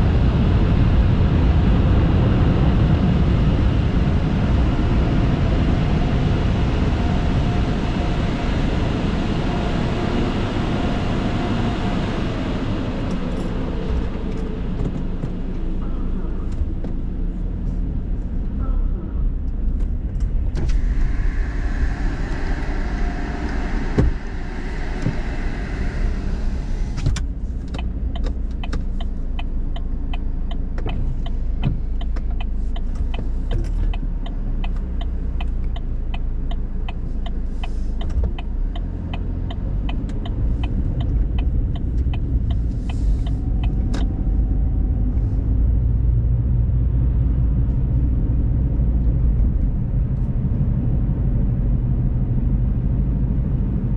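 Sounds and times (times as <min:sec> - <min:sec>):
car engine running: 0:00.0 - 0:53.9
turn signal ticking: 0:27.1 - 0:45.2.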